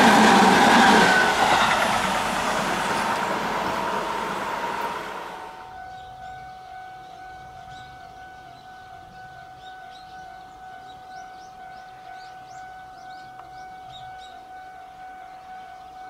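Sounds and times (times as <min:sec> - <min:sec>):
distant train rumble: 0:00.0 - 0:16.0
small birds chirping: 0:05.9 - 0:16.0.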